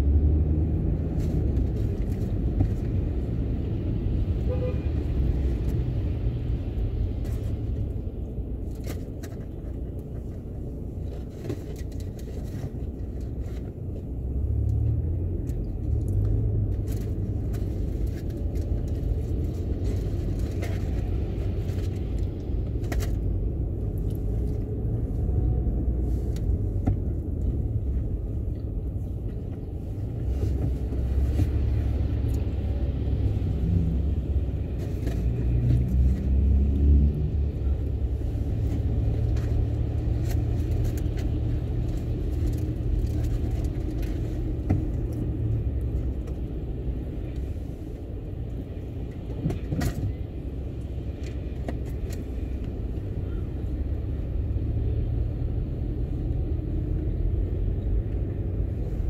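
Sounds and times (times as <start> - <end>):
car engine and tyres on wet road: 0.0 - 59.0.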